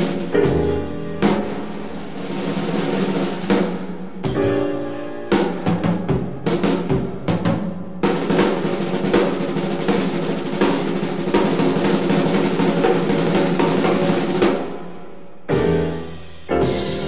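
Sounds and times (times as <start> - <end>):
jazz band playing: 0.0 - 14.5, 15.5 - 17.0
snare drum: 0.0 - 14.8, 15.5 - 17.0
loud ensemble chord: 15.5 - 17.0.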